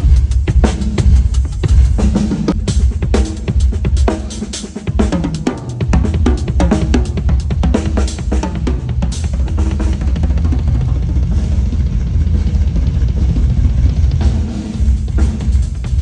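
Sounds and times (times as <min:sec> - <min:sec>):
drum kit playing: 0:00.0 - 0:16.0
heavy low boom: 0:09.4 - 0:16.0.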